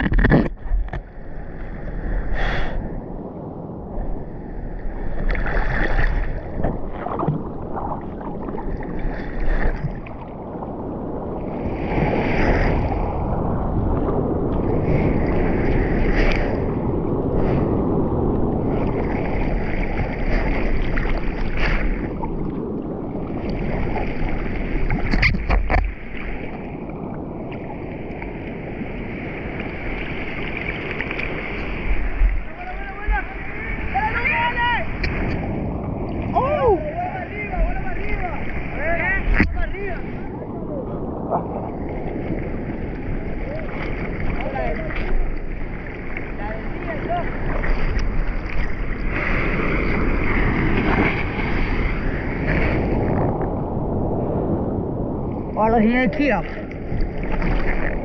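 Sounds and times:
water sloshing and splashing: 0.0s - 1.2s, 5.0s - 13.2s, 18.3s - 40.5s, 41.2s - 53.4s, 55.4s - 58.0s
breaking surf: 0.0s - 58.0s.

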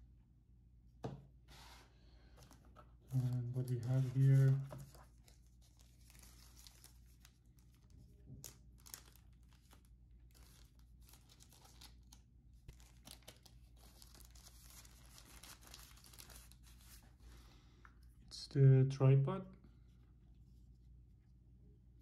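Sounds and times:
packaging crinkling and tearing: 2.4s - 17.1s.

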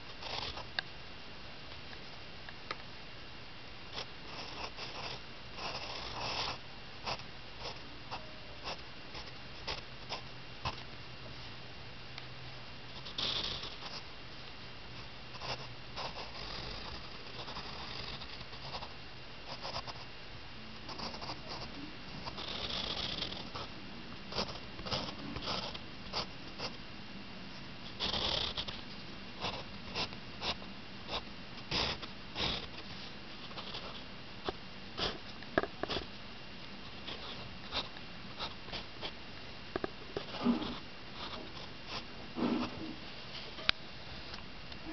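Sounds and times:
faint steady hiss: 0.0s - 44.9s
pencil scratching on paper: 0.1s - 0.7s, 3.9s - 10.2s, 13.0s - 14.0s, 15.3s - 18.9s, 19.5s - 20.0s, 20.9s - 23.7s, 24.3s - 26.8s, 28.0s - 28.8s, 29.4s - 35.2s, 37.0s - 39.1s, 40.2s - 42.8s.

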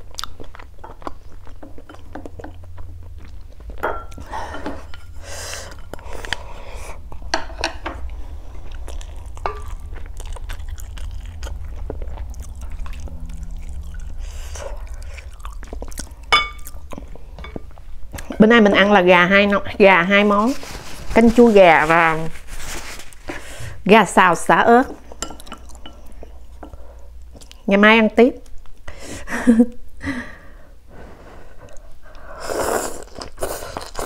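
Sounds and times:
person chewing: 0.0s - 7.3s, 8.0s - 18.4s, 31.6s - 34.0s.

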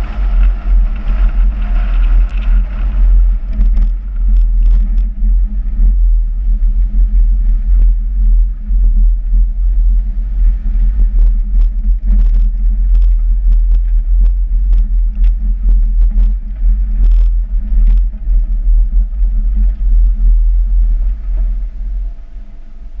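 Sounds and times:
engine and road rumble: 0.0s - 23.0s
sharp clicks and knocks: 0.4s - 5.3s, 11.2s - 20.2s.

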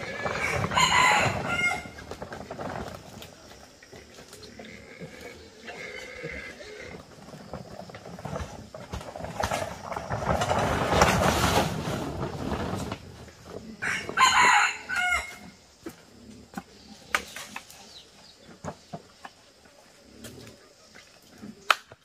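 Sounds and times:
rooster crowing: 0.0s - 2.0s, 13.8s - 15.5s
plastic tarp rustling: 0.0s - 3.5s, 7.3s - 13.7s.

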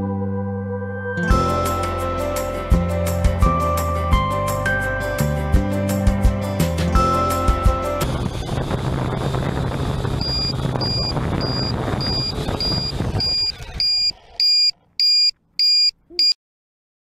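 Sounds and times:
drone motors humming: 8.1s - 15.3s
high electronic beeps: 10.2s - 16.4s.

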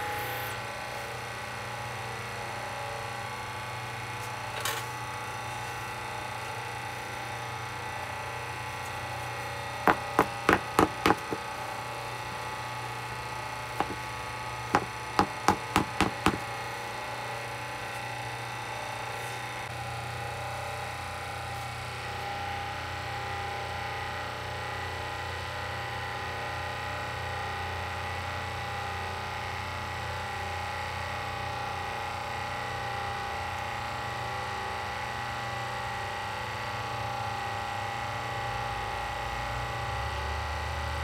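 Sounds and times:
steady hum: 5.1s - 19.7s
sharp knocks on hard disc: 9.9s - 11.4s, 13.8s - 14.1s, 14.8s - 16.5s.

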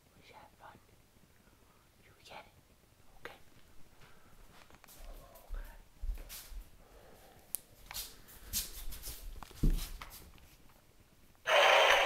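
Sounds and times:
plush toys rustling and knocking: 9.2s - 10.7s
toy motor steady noise: 11.5s - 12.0s.

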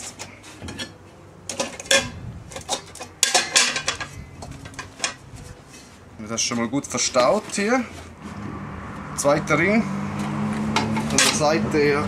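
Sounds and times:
metal plates clattering in bowl: 0.0s - 5.3s, 10.7s - 11.5s.

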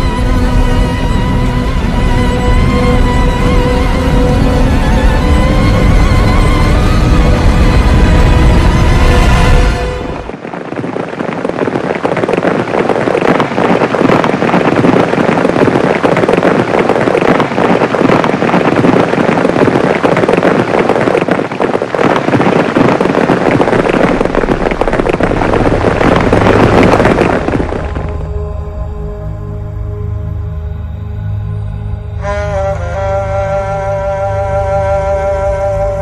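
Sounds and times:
dense crackling and popping: 0.0s - 29.1s.

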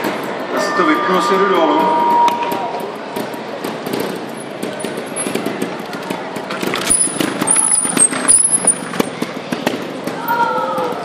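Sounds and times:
short high squeals: 0.4s - 3.2s.

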